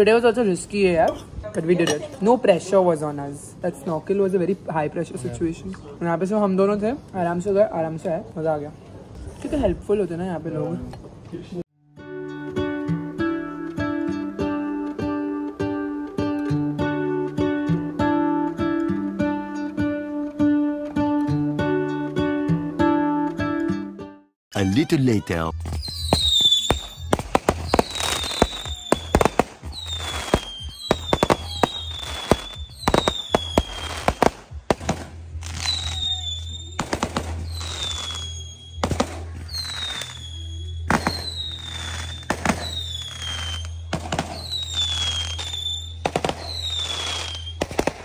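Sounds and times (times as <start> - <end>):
sharp cracks and bangs: 26.1 - 35.2, 36.8 - 37.9, 47.5 - 48.0
music with low bass: 29.1 - 45.2
short falling whistle: 39.5 - 43.8.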